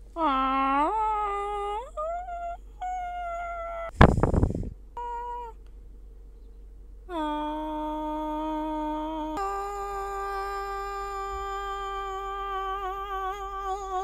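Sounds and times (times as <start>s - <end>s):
woman singing a held note: 7.1s - 14.0s.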